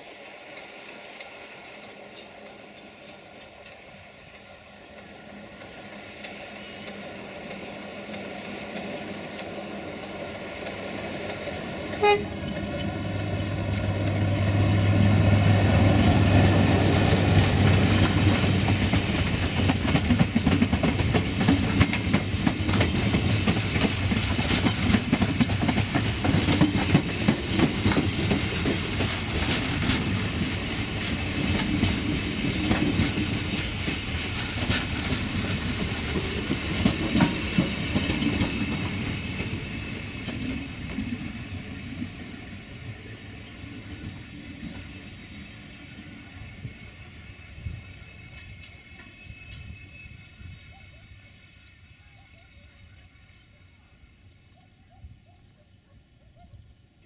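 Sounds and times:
train wheels rumbling: 0.0s - 52.0s
wheels clicking over rail joints: 15.0s - 41.3s.

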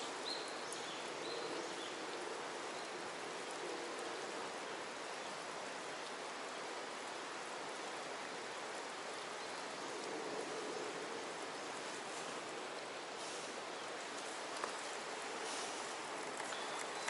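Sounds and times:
water hissing: 11.6s - 17.0s.

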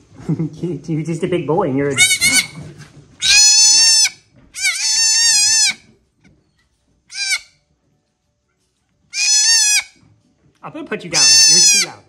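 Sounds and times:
goat kid bleating: 1.9s - 2.6s, 3.2s - 5.9s, 7.1s - 7.6s, 9.1s - 10.0s, 11.1s - 12.0s.

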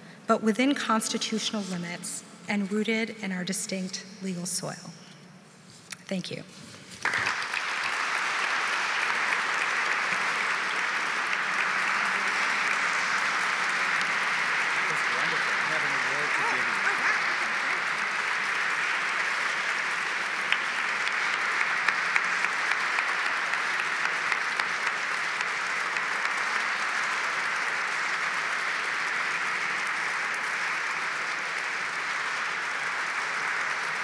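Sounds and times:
audience applauding: 6.9s - 34.0s.

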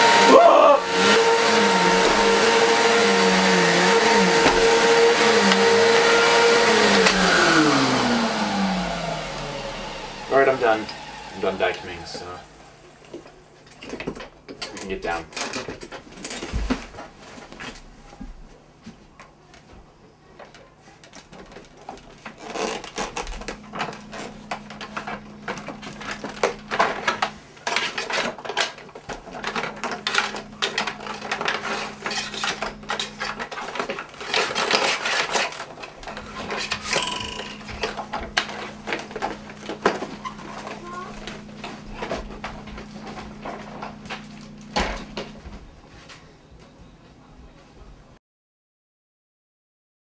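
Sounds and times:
plastic vacuum cleaner rattling: 21.0s - 44.5s.

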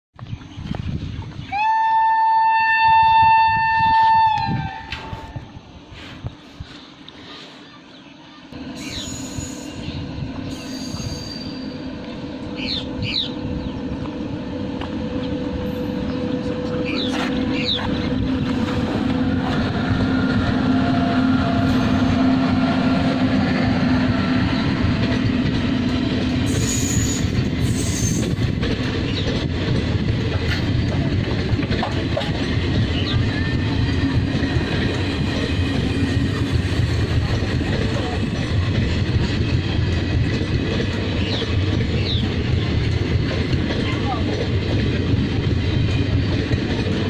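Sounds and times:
locomotive hum: 0.4s - 47.0s
train wheels rumbling on rails: 8.4s - 47.0s
wheel squeals: 8.8s - 11.9s, 26.4s - 28.4s.

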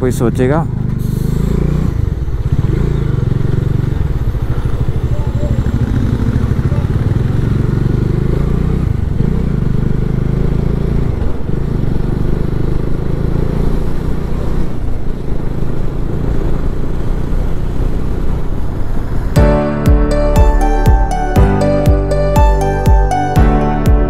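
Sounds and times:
motorcycle engine running: 0.0s - 24.0s
background music: 19.4s - 24.0s.

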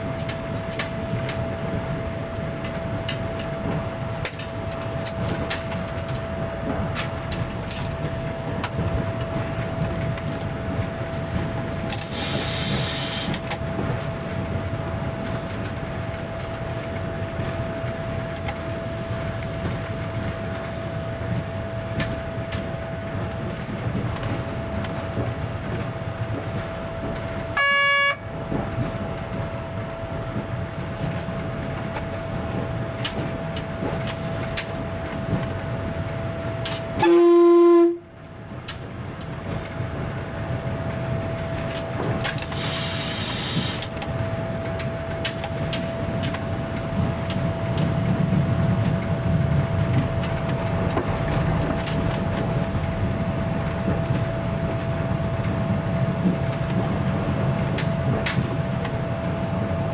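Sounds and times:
railbus rumbling: 0.0s - 59.9s
train horn: 27.5s - 28.3s, 37.0s - 38.2s.

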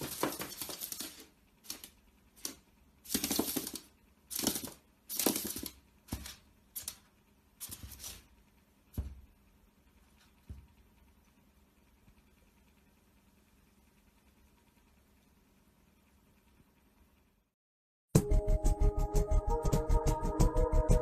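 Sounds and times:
claws scratching on mirror and floor: 0.0s - 8.3s.

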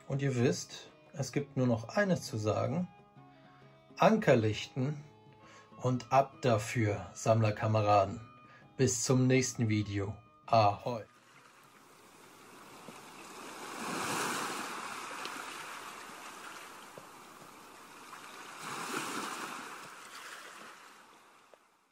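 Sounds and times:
ocean waves breaking: 11.2s - 21.6s.

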